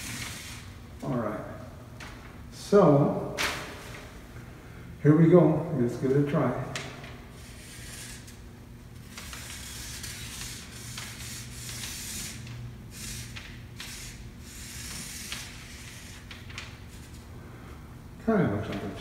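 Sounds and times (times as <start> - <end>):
marker scratching on paper: 7.4 - 8.4, 9.0 - 17.2.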